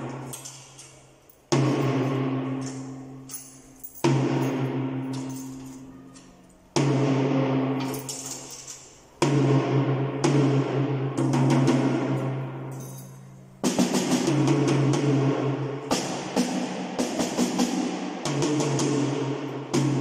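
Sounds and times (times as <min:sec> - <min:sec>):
drum strokes ringing out: 0:01.5 - 0:03.4, 0:04.0 - 0:05.6, 0:06.6 - 0:08.1, 0:09.1 - 0:12.7, 0:13.4 - 0:20.0.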